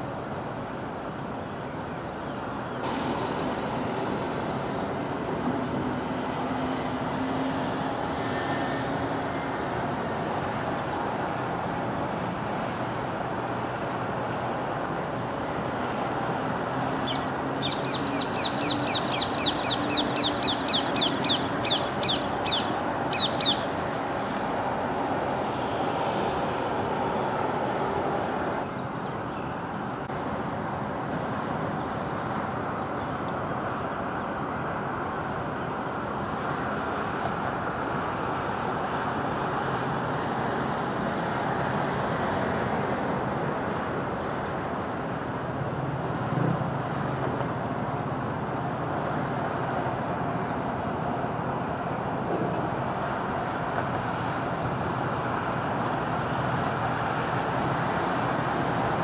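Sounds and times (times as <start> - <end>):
road traffic: 0.0 - 59.0
bird chattering calls: 17.0 - 23.7.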